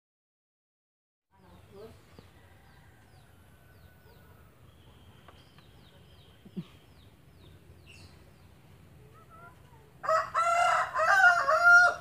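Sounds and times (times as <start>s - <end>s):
small birds chirping: 1.3s - 10.6s
rooster crowing: 10.0s - 12.0s.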